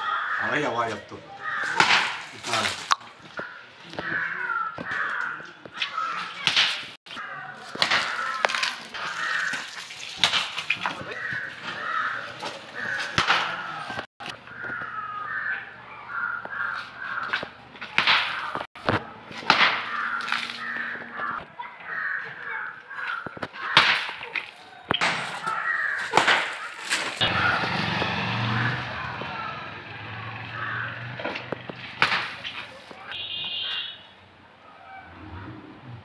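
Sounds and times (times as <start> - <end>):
crows cawing: 0.0 - 6.4, 7.1 - 9.9, 10.8 - 17.5, 19.5 - 24.2, 25.0 - 31.3, 33.0 - 34.1
water splashing onto person: 8.0 - 11.1.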